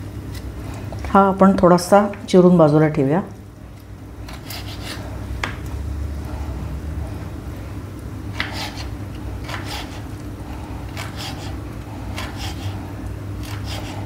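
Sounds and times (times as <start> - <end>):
low background hum: 0.0 - 14.0
knife chopping on wooden board: 8.4 - 10.0, 12.2 - 12.7.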